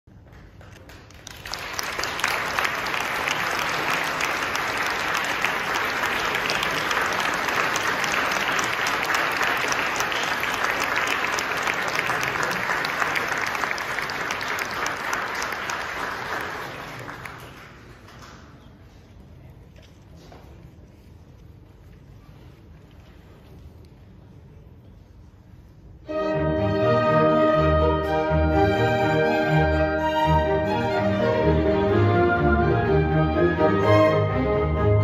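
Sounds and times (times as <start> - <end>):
audience applauding: 0.1 - 18.8.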